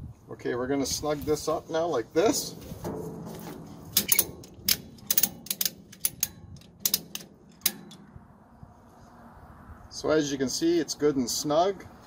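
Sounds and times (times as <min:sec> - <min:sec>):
ratchet strap clicking: 0:04.0 - 0:08.0.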